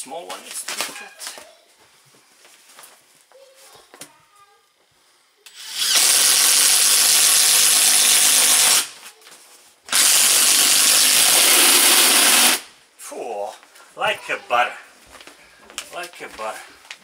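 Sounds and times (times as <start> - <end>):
cordless drill boring through wood: 5.5 - 9.0, 9.9 - 12.7.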